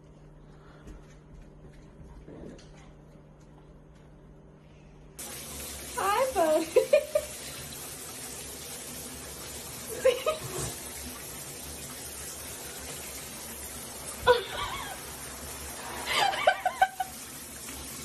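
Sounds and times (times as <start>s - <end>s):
shower running: 5.2s - 18.0s
person snickering: 14.3s - 15.0s.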